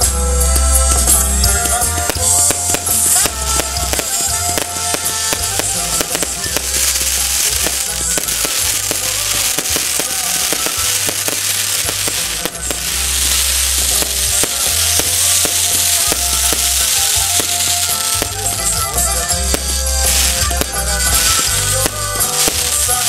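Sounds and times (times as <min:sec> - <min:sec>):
band playing a waltz: 0:00.0 - 0:23.0
fireworks crackling and hissing: 0:00.0 - 0:23.0.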